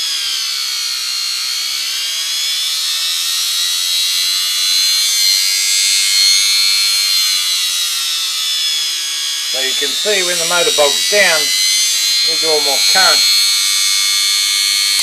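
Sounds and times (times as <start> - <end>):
electric motor whining: 9.5 - 15.0.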